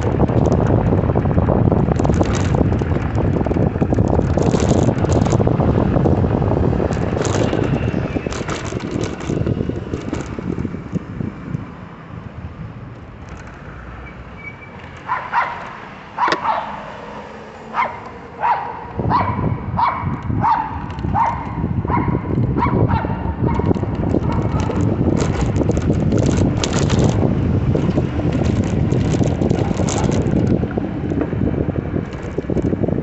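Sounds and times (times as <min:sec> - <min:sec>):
wind rushing over microphone: 0:00.0 - 0:14.0, 0:14.6 - 0:33.0
dog barking: 0:15.1 - 0:16.9, 0:17.7 - 0:23.7.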